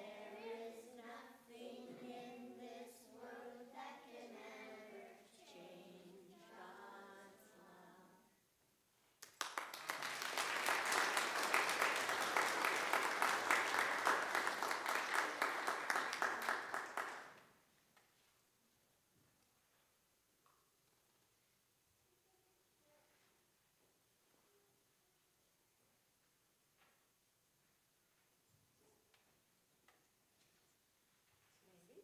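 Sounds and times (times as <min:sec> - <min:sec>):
children singing: 0:00.0 - 0:08.3
congregation applauding: 0:09.2 - 0:17.4.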